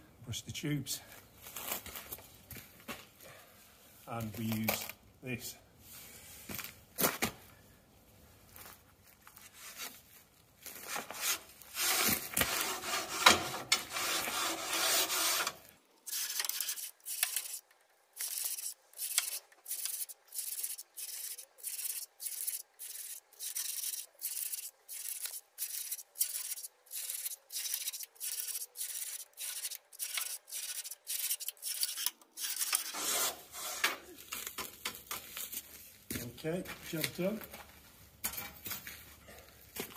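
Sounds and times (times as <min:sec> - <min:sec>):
tube brush scraping in boiler tubes: 0:11.0 - 0:34.1.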